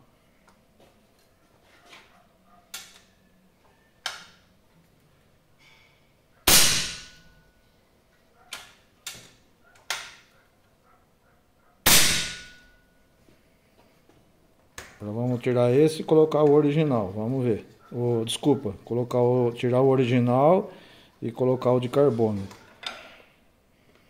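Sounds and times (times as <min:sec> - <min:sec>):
air rifle shots: 0:06.5 - 0:07.2, 0:11.8 - 0:12.7.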